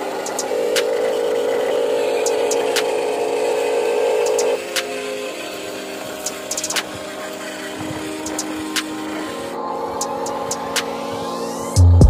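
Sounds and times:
toy truck motor whining: 0:00.0 - 0:04.7.

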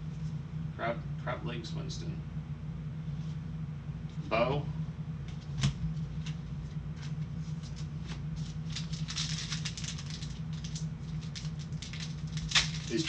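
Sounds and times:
steady low hum: 0:00.0 - 0:13.0
plastic wrapper crinkling: 0:07.6 - 0:13.0.

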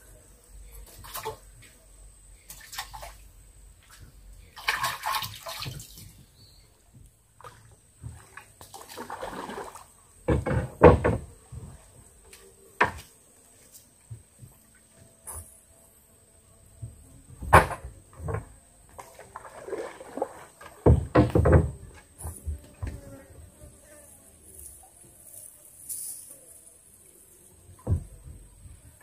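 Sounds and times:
water sloshing and splashing: 0:02.5 - 0:06.3, 0:07.4 - 0:10.7, 0:18.3 - 0:21.8
dull knocks: 0:10.3 - 0:11.7, 0:20.8 - 0:21.8.

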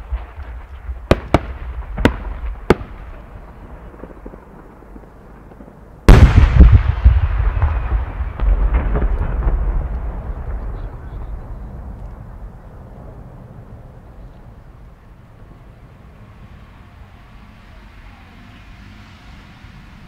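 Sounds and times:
firework boom rumbling: 0:00.0 - 0:14.6.

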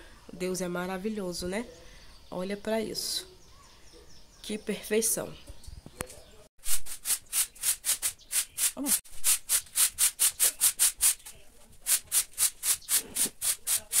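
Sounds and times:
broom sweeping concrete floor: 0:06.6 - 0:14.0.

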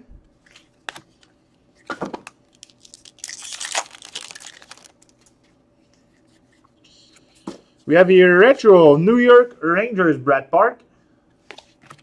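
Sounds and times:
wrapper being torn and crinkled: 0:02.2 - 0:05.3.

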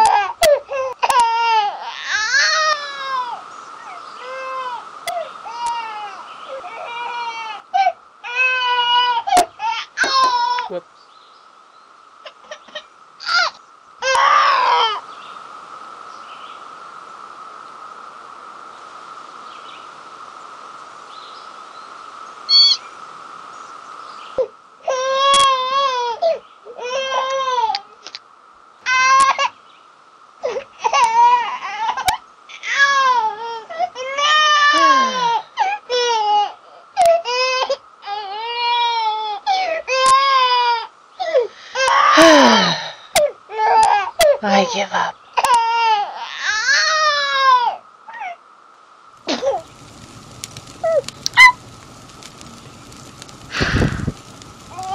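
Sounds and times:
steady background drone: 0:48.9 - 0:54.9.

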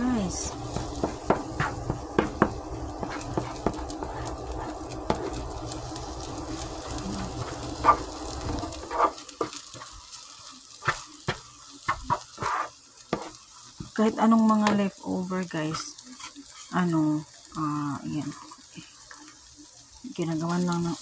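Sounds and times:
light sizzle: 0:00.0 - 0:21.0
spatula scraping frying pan: 0:00.5 - 0:05.5, 0:06.8 - 0:10.0, 0:10.8 - 0:13.4, 0:15.7 - 0:16.8
spatula tapping pan: 0:00.6 - 0:05.4, 0:07.4 - 0:09.9, 0:10.8 - 0:14.0.

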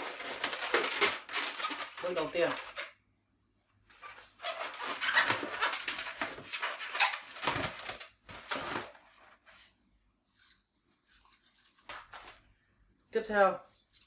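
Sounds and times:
balloons rubbing and squeaking: 0:00.0 - 0:02.9, 0:03.9 - 0:09.1.

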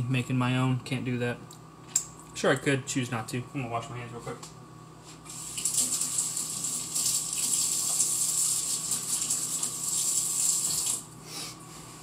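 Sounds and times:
tap water running: 0:05.3 - 0:11.1.

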